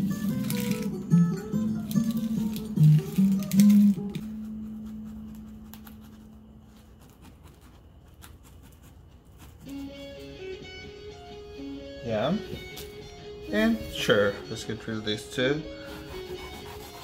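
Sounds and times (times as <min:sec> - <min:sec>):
guitar music: 0:00.0 - 0:04.7, 0:09.7 - 0:17.0
knife cutting onion on board: 0:01.8 - 0:10.1, 0:15.8 - 0:17.0.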